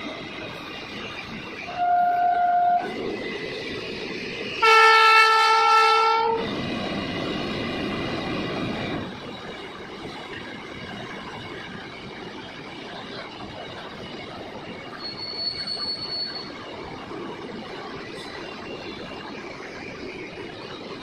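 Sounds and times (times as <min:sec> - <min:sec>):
train horn blasts: 0:01.7 - 0:03.0, 0:04.6 - 0:06.4.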